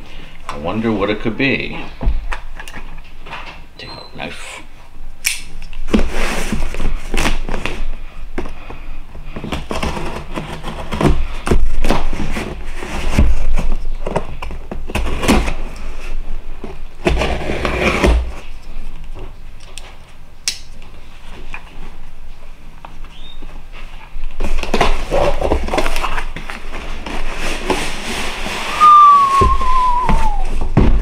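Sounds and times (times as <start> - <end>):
cardboard box scraping and crackling: 9.4 - 15.7, 17.0 - 18.4, 24.4 - 30.6.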